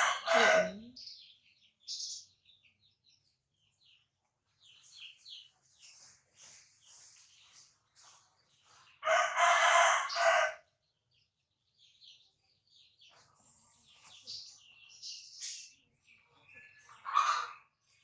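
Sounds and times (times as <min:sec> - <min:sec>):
rooster crowing: 0:00.0 - 0:00.7, 0:09.0 - 0:10.6
small birds chirping: 0:00.0 - 0:18.0.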